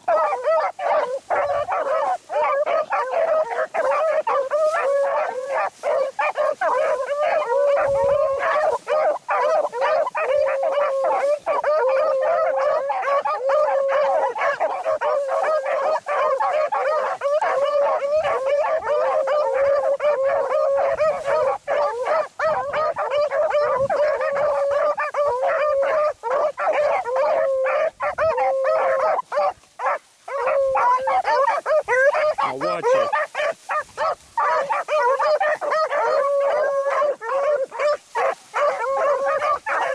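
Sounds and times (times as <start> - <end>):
beagles baying: 0.0 - 39.9.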